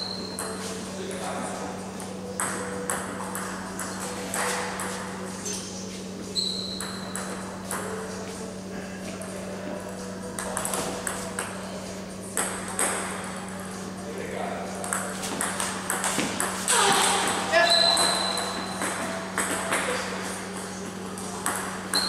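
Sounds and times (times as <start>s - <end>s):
table tennis balls clicking: 14.8s - 22.0s.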